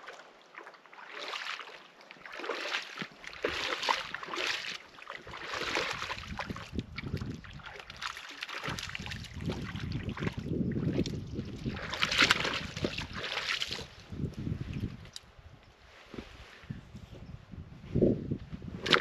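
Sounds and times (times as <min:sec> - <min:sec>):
waves lapping against rocks: 0:00.0 - 0:14.0
wind rumbling on microphone: 0:05.2 - 0:19.0.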